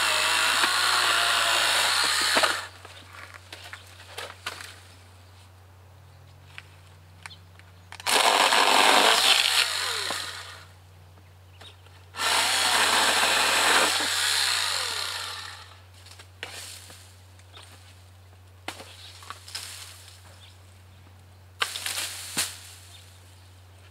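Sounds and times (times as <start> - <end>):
pole saw cutting palm fronds: 0.0 - 2.8, 8.0 - 10.7, 12.2 - 15.8.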